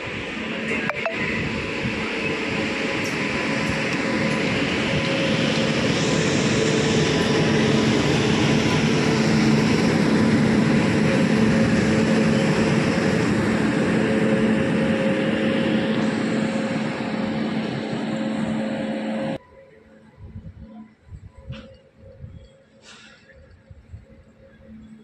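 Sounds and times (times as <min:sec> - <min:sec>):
locomotive cooling blowers whirring: 0:01.4 - 0:19.4.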